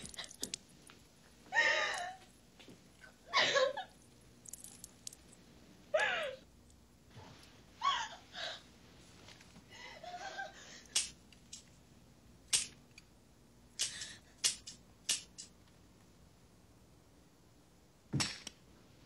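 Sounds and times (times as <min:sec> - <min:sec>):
girl crying softly: 0:01.5 - 0:02.2.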